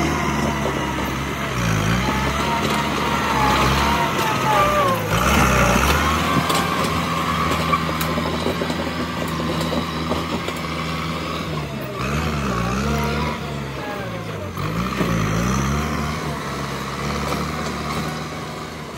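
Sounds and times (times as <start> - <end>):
tractor diesel engine lugging: 0.0 - 18.9.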